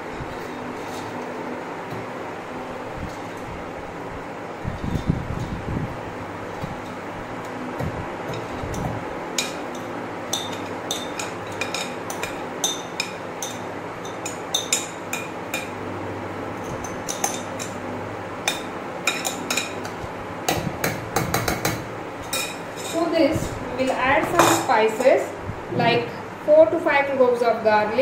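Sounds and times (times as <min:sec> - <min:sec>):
metal spoon clinking on bowl: 0:09.4 - 0:15.7.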